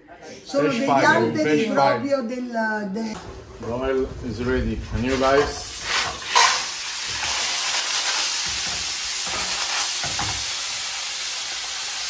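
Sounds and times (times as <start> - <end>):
clams sizzling in hot oil: 3.2 - 12.0.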